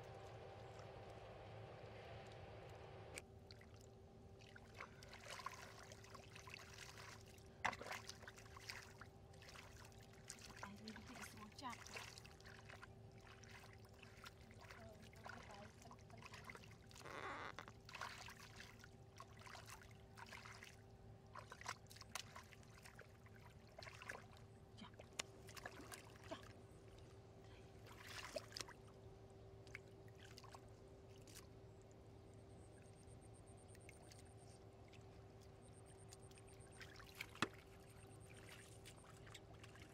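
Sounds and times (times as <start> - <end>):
faint steady hum: 0.0 - 39.9
hands splashing in muddy water: 4.7 - 10.7.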